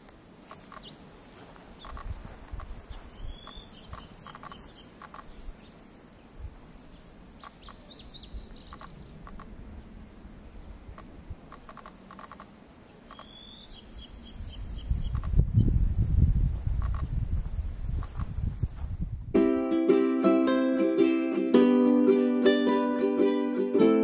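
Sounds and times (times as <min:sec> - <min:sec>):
bird singing: 0:01.8 - 0:15.9.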